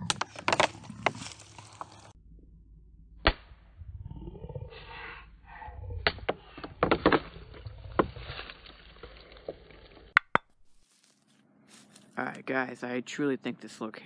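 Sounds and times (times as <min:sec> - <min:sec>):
crackles and knocks: 0:00.0 - 0:04.2, 0:05.9 - 0:11.0
slowed rustling in undergrowth: 0:00.2 - 0:02.2, 0:07.6 - 0:12.4.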